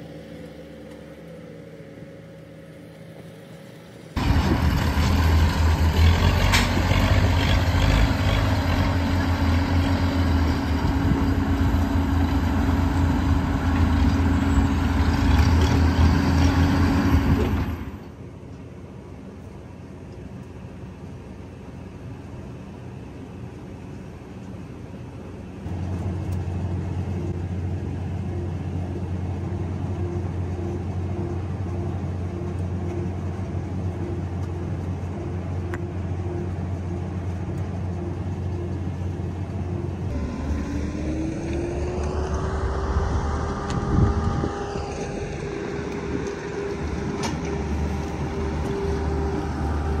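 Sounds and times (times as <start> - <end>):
engine with rising pitch: 0.0 - 18.2, 25.6 - 50.0
tractor engine running: 0.0 - 50.0.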